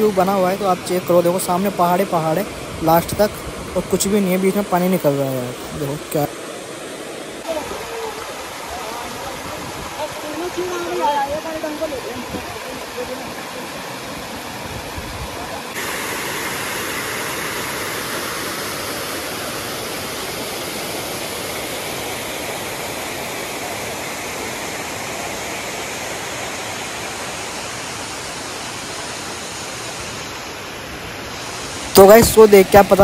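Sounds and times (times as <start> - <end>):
water rushing over rocks: 0.0 - 33.0.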